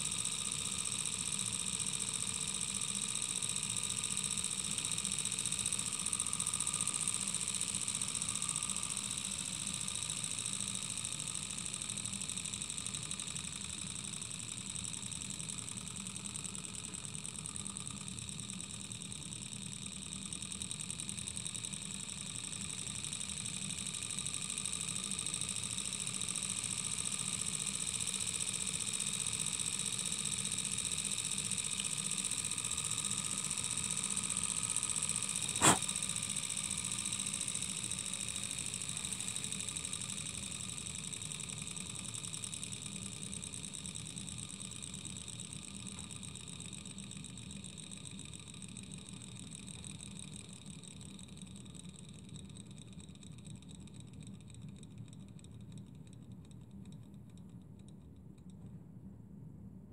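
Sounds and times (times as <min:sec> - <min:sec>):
model engine mechanical clatter: 0:00.0 - 0:58.6
sharp click: 0:35.4 - 0:35.9.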